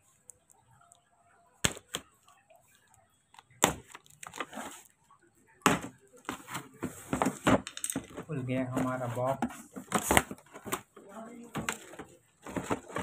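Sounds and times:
cardboard rustling: 3.6s - 4.9s, 5.7s - 13.0s.

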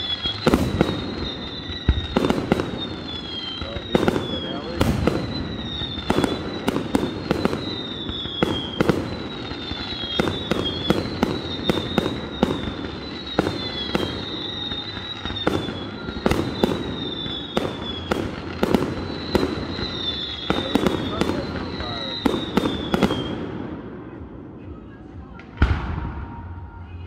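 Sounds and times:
falling firework whistles: 0.0s - 23.8s
fireworks bangs and crackles: 0.0s - 27.0s.

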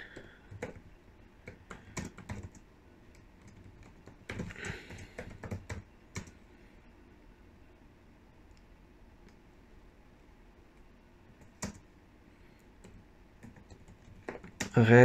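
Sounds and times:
typing on computer keyboard: 0.0s - 6.4s, 11.4s - 11.8s, 12.8s - 14.8s.

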